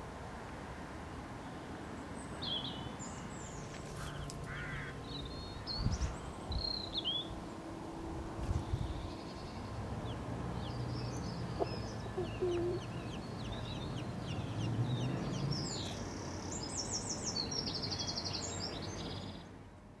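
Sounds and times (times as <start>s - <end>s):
baby chicks peeping: 10.1s - 16.0s.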